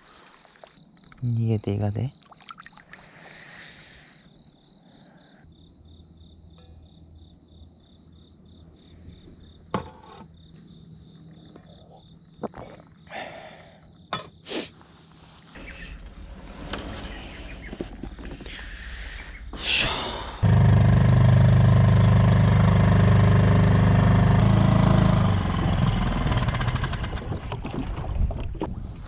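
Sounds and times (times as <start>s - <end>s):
insects trilling and chirping: 0.0s - 20.4s.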